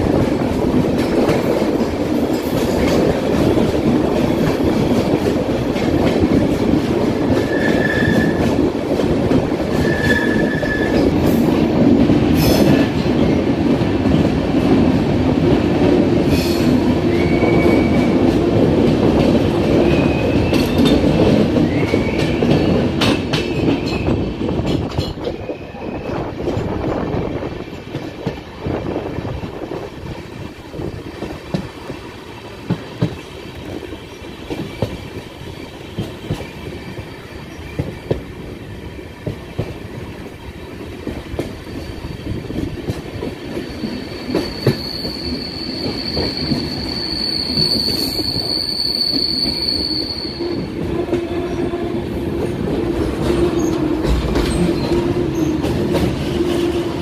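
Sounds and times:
train rumbling over rails: 0.0s - 57.0s
train wheel squeal: 7.3s - 8.6s, 9.7s - 11.5s, 16.3s - 18.4s, 19.8s - 24.3s, 25.0s - 26.6s, 41.5s - 42.6s, 43.5s - 51.9s, 53.3s - 57.0s.

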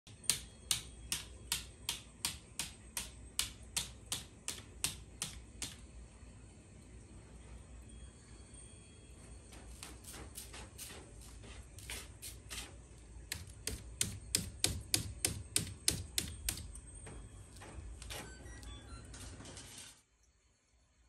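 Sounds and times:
cat scratching in litter box: 9.6s - 14.0s.

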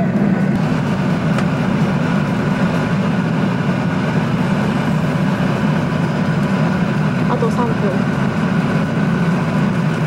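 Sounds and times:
airliner cabin engine drone: 0.0s - 10.0s.

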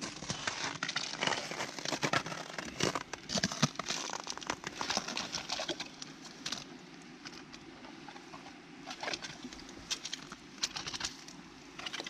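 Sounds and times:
ice auger crunching through ice: 0.0s - 6.7s.

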